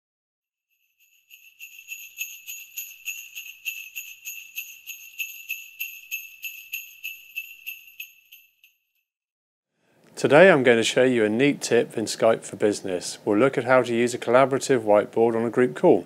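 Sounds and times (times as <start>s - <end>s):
sleigh bells jingling: 0.7s - 9.0s.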